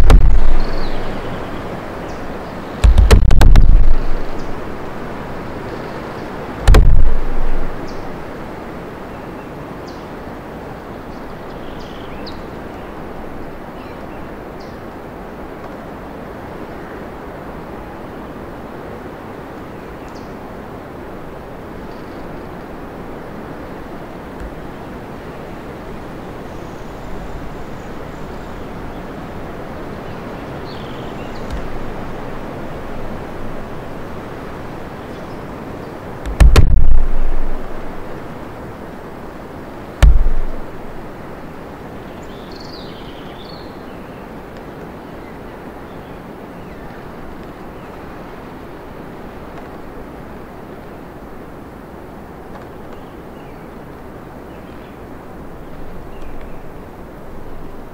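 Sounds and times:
loud low thump: 0:00.0 - 0:01.2, 0:02.8 - 0:04.6, 0:06.7 - 0:08.0, 0:31.5 - 0:31.9, 0:36.2 - 0:37.8, 0:40.0 - 0:41.0
faint bird chirps: 0:00.0 - 0:02.8
wind through trees: 0:00.0 - 0:57.9.

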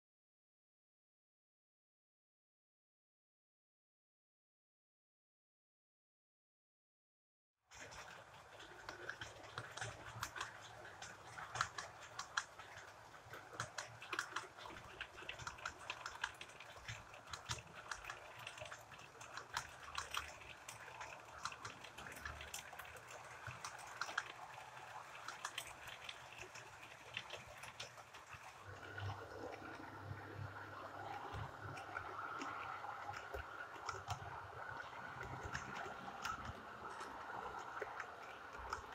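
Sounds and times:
model train wheels clicking: 0:07.7 - 0:28.7.

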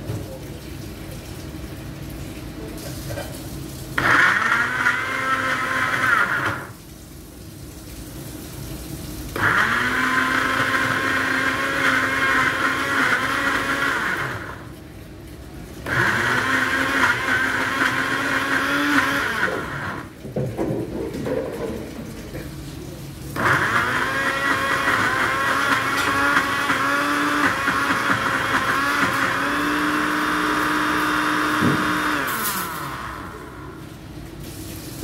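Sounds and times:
electric blender running: 0:04.0 - 0:06.8, 0:09.3 - 0:14.7, 0:15.8 - 0:20.2, 0:23.4 - 0:33.8.

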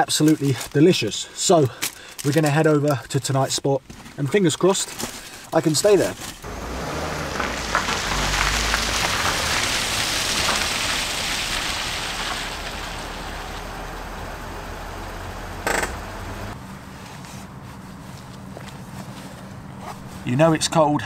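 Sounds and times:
outdoor ambience: 0:00.0 - 0:21.0
car driving on wet ground: 0:06.4 - 0:20.6.

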